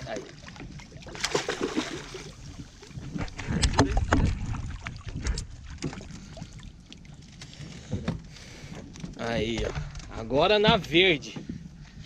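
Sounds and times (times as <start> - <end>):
fish thrashing in water: 0.2 - 7.2.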